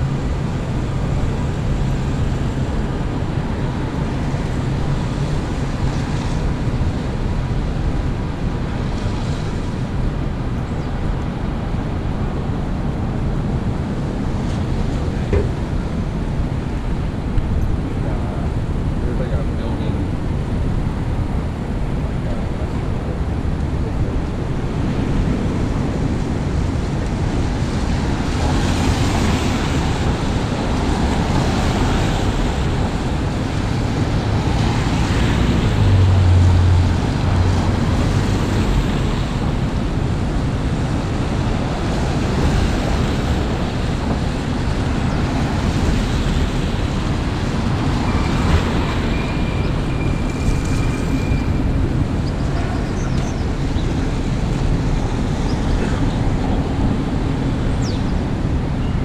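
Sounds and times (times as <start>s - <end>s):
low traffic rumble: 0.0s - 59.0s
tyres hissing on wet road: 24.3s - 57.8s.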